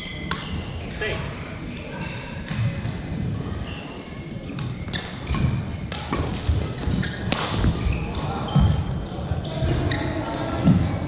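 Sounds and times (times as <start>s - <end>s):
shoes squeaking on court: 0.0s - 10.8s
racket striking shuttlecock: 7.3s - 7.8s.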